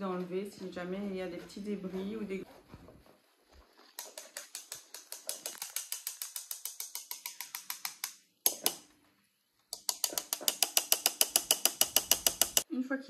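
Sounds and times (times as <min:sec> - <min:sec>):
spoon tapping metal sieve: 0:09.8 - 0:12.6.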